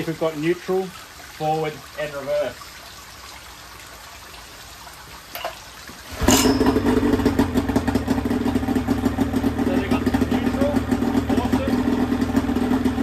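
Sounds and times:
outboard motor running: 6.1 - 13.0.

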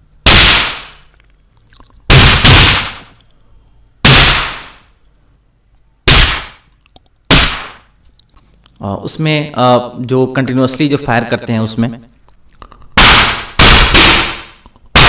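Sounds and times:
man imitating gunshots with mouth: 2.1 - 3.0, 12.9 - 15.0.

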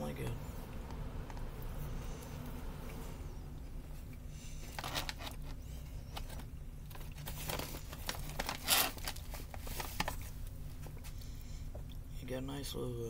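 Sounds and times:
plastic snack bag crinkling: 6.9 - 10.5.

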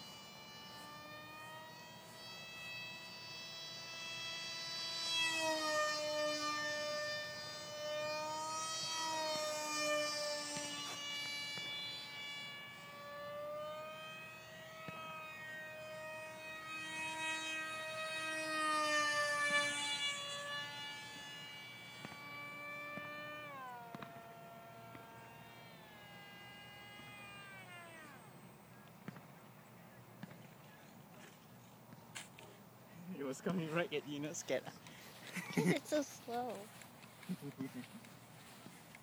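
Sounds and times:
model airplane engine whine: 0.0 - 39.0.

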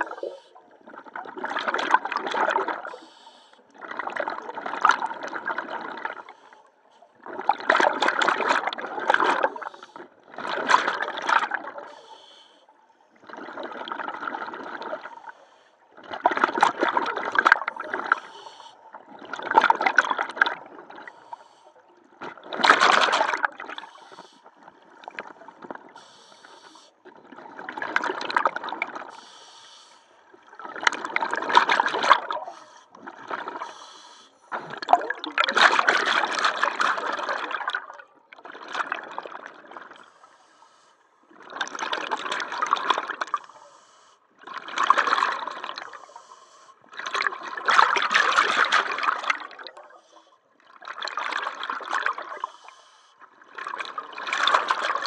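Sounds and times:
breath bubbling underwater: 0.0 - 3.0, 30.5 - 33.7, 34.5 - 40.0, 44.4 - 50.0.

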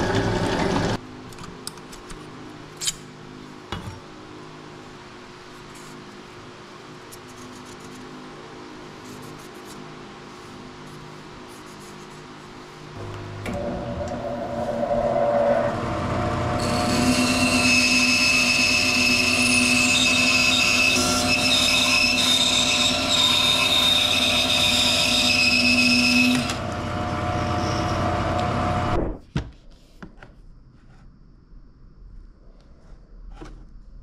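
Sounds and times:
band saw motor hum: 13.0 - 28.9
saw blade whining through wood: 13.0 - 29.0.

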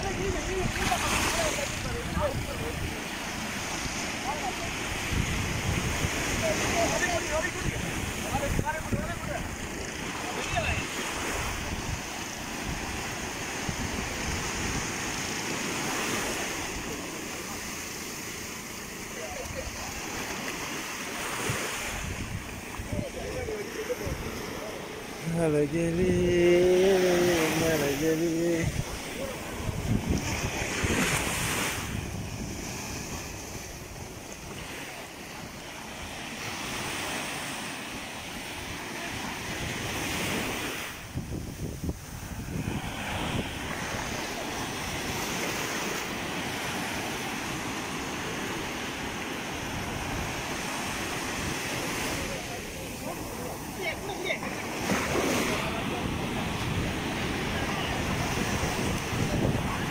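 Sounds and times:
wind buffeting microphone: 0.0 - 17.0, 21.4 - 34.7, 38.7 - 45.7, 49.5 - 59.9
sea surf washing on shore: 0.0 - 59.9.

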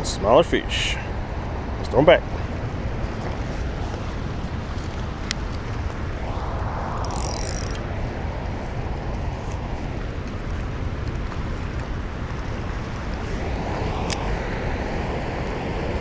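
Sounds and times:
low rumble: 5.7 - 16.0.

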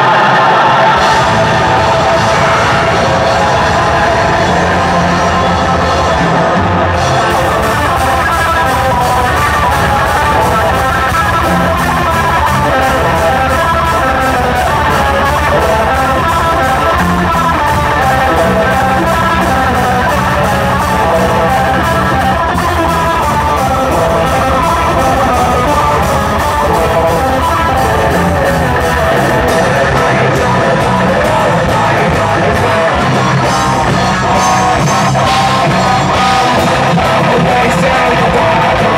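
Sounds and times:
bass guitar: 0.0 - 38.9
distorted electric guitar: 0.0 - 38.9
rapid drumming: 0.0 - 38.9.

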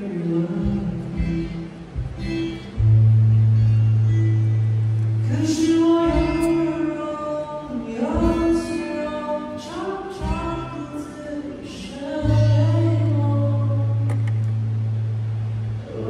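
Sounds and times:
man singing into a microphone: 0.0 - 1.8, 5.2 - 14.1
strummed acoustic guitar: 0.0 - 14.5.

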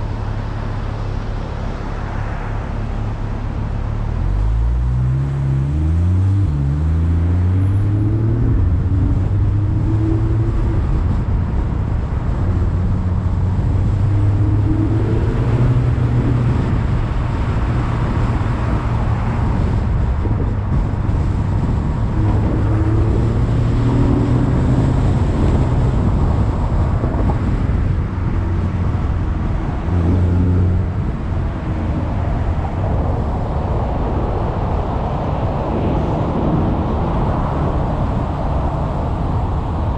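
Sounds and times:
car engine accelerating: 0.0 - 39.9
road and wind rumble: 0.0 - 39.9.

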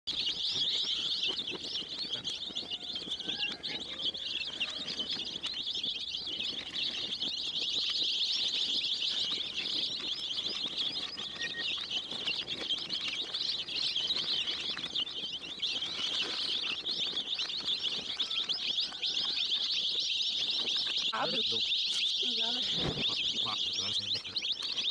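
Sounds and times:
baby chicks peeping: 0.0 - 24.9.

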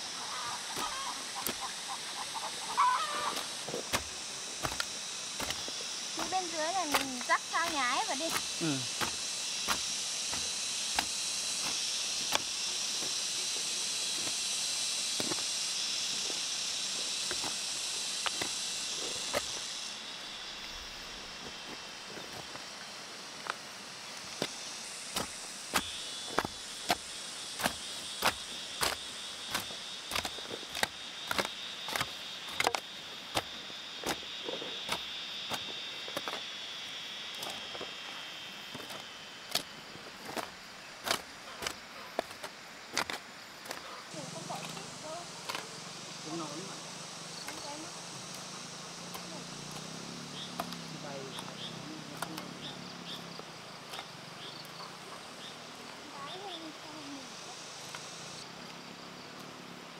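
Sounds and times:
soil sliding: 0.0 - 36.6, 38.6 - 45.8
steady high hiss: 0.0 - 59.9
hand hoe chopping into earth: 0.7 - 1.8, 2.8 - 13.3, 15.1 - 15.5, 17.2 - 19.7, 24.3 - 36.4, 38.7 - 43.9.

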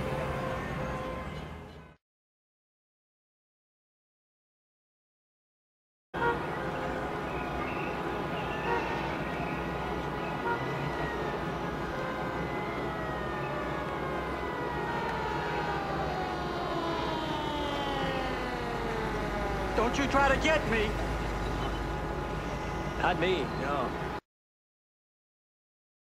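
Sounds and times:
emergency vehicle sirens wailing: 0.0 - 2.0, 6.2 - 24.2.

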